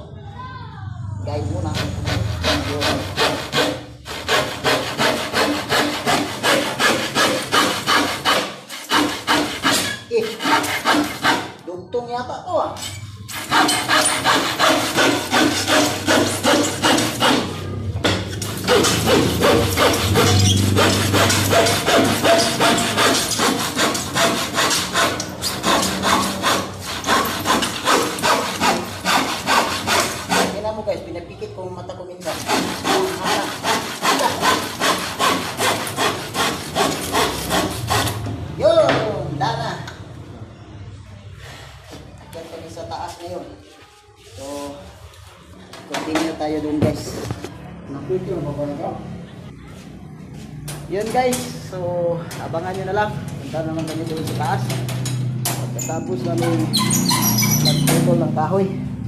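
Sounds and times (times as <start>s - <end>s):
handsaw cutting wood: 1.6s - 11.6s, 13.3s - 30.8s, 32.2s - 38.3s, 56.3s - 58.2s.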